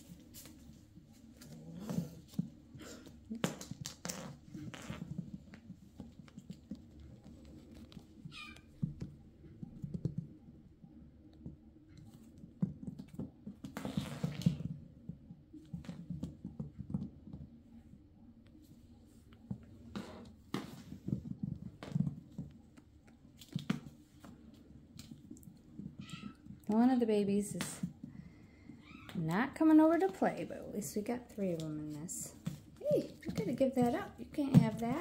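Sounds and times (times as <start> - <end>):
kittens scrambling on wooden floor: 0.0 - 10.3, 19.5 - 26.8.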